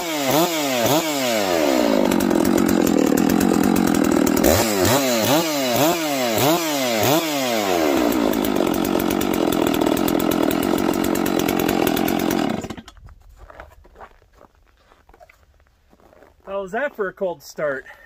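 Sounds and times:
chainsaw revving and idling: 0.0s - 12.9s.

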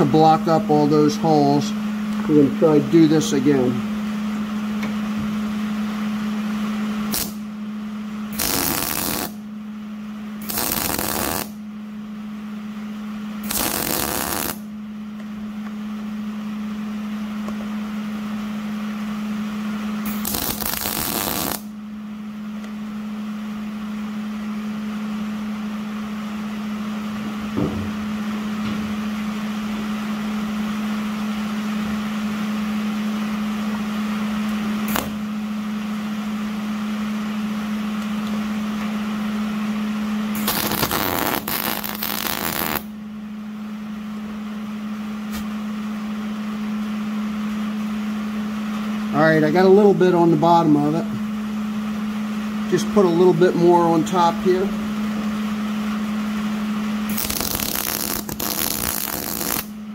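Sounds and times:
low hum with hiss: 0.0s - 59.9s
welder arc crackling: 7.1s - 7.5s, 8.3s - 9.4s, 10.4s - 11.6s, 13.4s - 14.7s, 20.0s - 21.7s, 34.8s - 35.3s, 40.4s - 42.9s, 57.1s - 59.8s.

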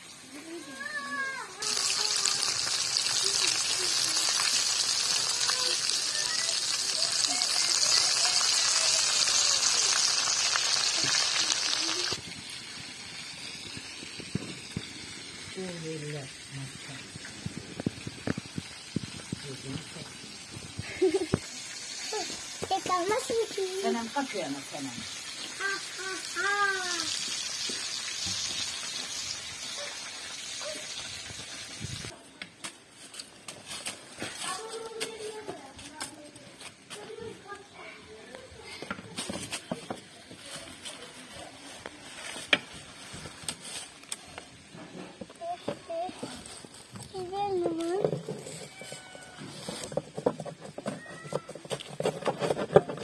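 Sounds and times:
chicken frying in oil: 0.0s - 32.2s, 48.6s - 50.2s.

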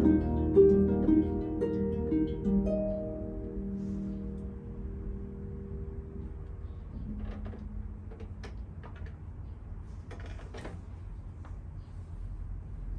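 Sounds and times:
harp notes ringing: 0.0s - 8.1s
low room rumble: 0.0s - 12.9s
soft clicks and knocks: 7.0s - 11.6s.

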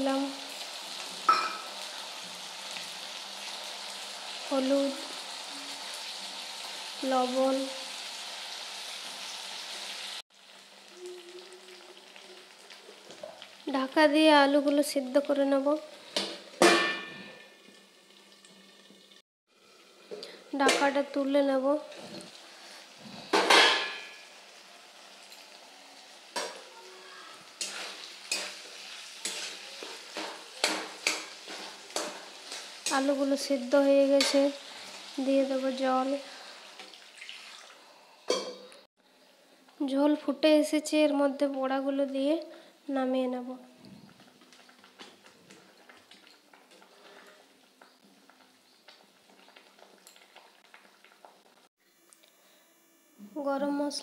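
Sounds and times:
faint frying sizzle: 0.0s - 38.4s, 39.1s - 54.0s
metal spatula scraping a pan: 27.4s - 33.2s
broth bubbling in a metal pan: 44.0s - 51.7s.

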